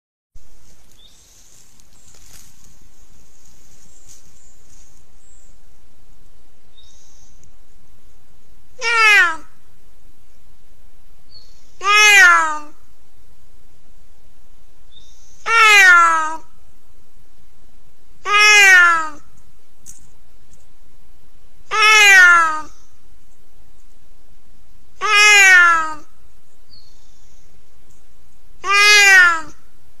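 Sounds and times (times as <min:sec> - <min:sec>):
mountain lion call: 0:08.8 - 0:09.6, 0:11.8 - 0:12.8, 0:15.4 - 0:16.5, 0:18.2 - 0:19.3, 0:21.6 - 0:22.9, 0:25.0 - 0:26.2, 0:28.6 - 0:29.7.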